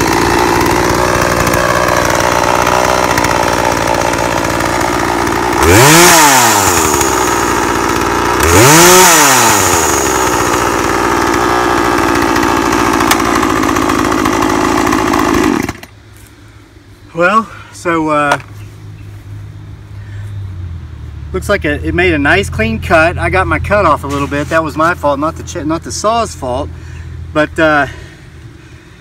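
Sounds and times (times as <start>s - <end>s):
chainsaw idling and revving: 0.0s - 16.0s.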